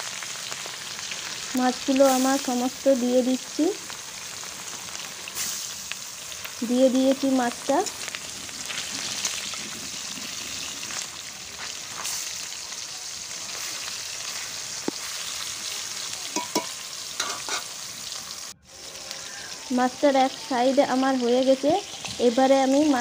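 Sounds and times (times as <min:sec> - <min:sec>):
fish frying in hot oil: 0:00.0 - 0:23.0
metal spatula scraping pan: 0:16.4 - 0:17.8.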